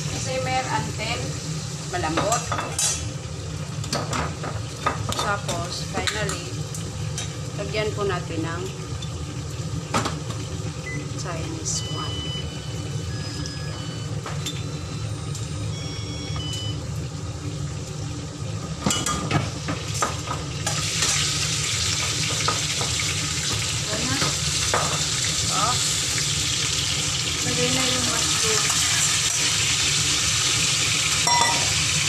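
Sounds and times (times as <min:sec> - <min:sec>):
spoon clinking on steel pot: 0:31.2 - 0:31.8.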